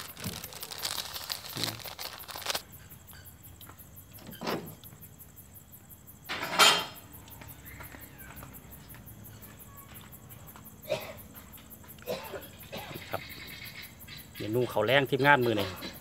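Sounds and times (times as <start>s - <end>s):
dishes and utensils clattering: 6.3s - 7.0s.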